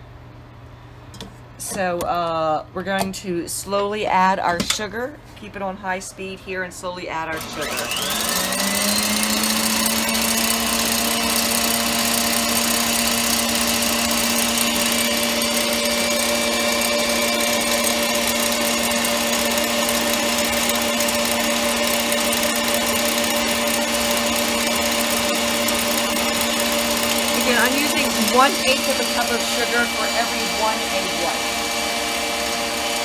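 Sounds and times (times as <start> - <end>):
stand mixer whining: 7.3 - 33.0.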